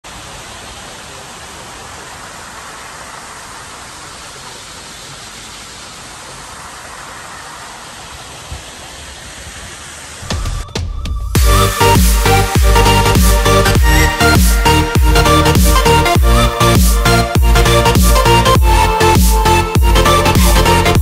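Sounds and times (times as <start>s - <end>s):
hot spring hissing: 0.0s - 10.4s
music with heavy beat: 10.3s - 21.0s.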